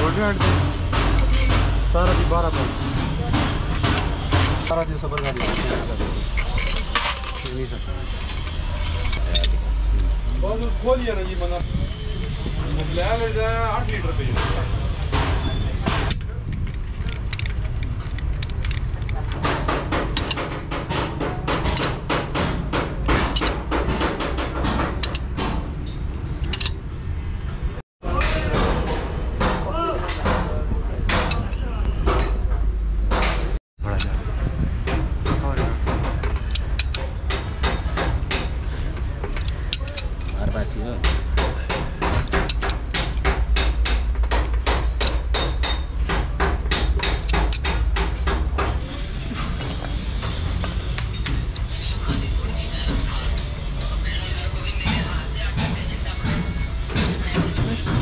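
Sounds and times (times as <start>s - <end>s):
metallic clicking and clacking: 0.0s - 10.1s, 12.8s - 32.5s, 34.8s - 58.0s
rapid metallic clicks of hand tool: 17.1s - 25.6s, 36.2s - 38.5s, 41.0s - 48.1s.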